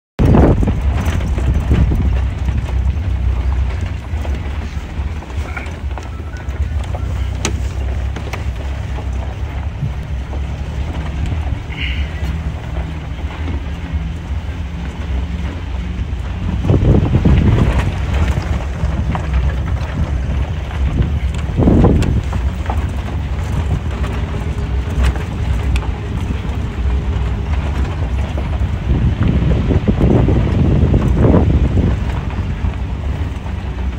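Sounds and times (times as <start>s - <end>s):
wind buffeting microphone: 0.2s - 33.9s.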